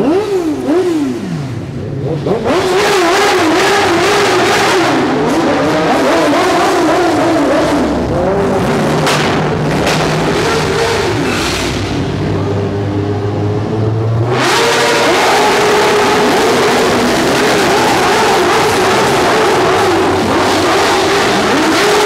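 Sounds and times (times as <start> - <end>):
motorcycle engine revving: 0.0 - 22.0.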